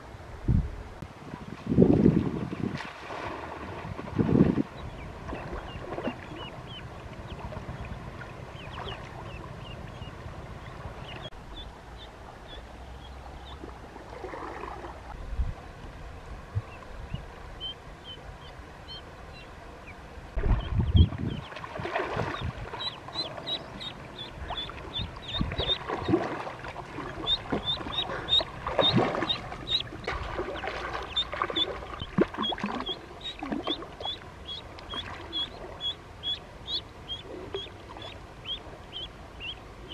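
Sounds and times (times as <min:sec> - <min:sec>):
water splashing: 0:01.8 - 0:11.4, 0:13.3 - 0:15.2, 0:20.3 - 0:39.9
ducklings peeping: 0:04.7 - 0:13.6, 0:16.6 - 0:21.6, 0:22.2 - 0:39.9.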